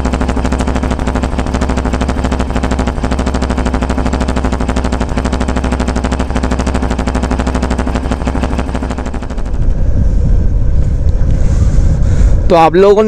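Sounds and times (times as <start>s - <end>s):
motorcycle engine idling fast: 0.0s - 13.0s
motorcycle engine rumble riding: 0.0s - 13.0s
wind on microphone: 7.4s - 13.0s.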